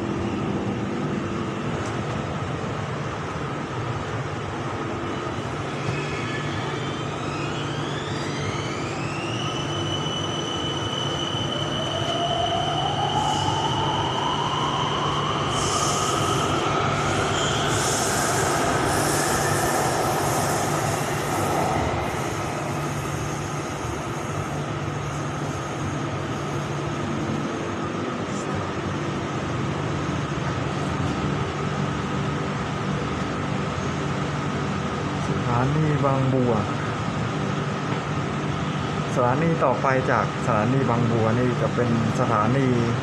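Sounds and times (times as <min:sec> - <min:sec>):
lower rising whine: 0:00.0 - 0:35.4
wheels hissing on track: 0:13.0 - 0:26.8.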